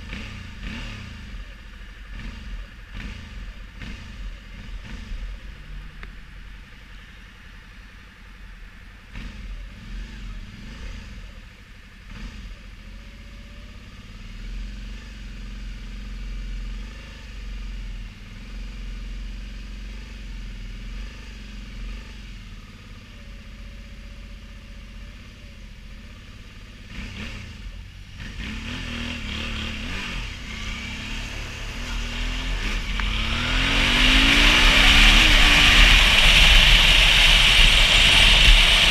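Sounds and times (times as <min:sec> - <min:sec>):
motorcycle engine idling and revving: 0:00.0 - 0:38.9
wind noise: 0:32.1 - 0:38.9.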